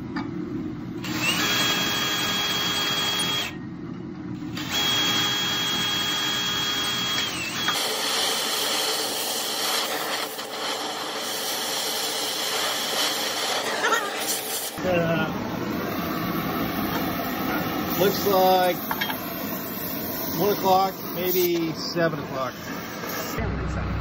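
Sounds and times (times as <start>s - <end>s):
cordless drill boring through steel: 1.0s - 3.6s, 4.6s - 14.8s
welding arc crackling hiss: 4.4s - 23.4s.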